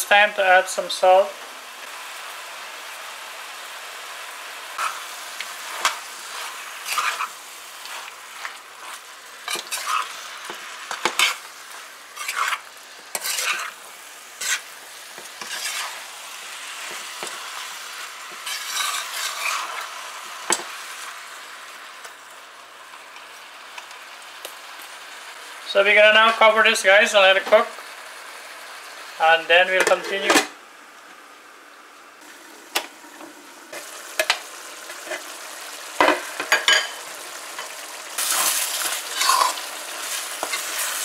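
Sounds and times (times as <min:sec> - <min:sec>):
curry sizzling in a frying pan: 0:00.0 - 0:41.0
metal spoon scraping pan: 0:05.7 - 0:11.5, 0:12.1 - 0:13.8, 0:14.4 - 0:14.7, 0:15.4 - 0:16.0, 0:18.3 - 0:19.8, 0:37.6 - 0:41.0.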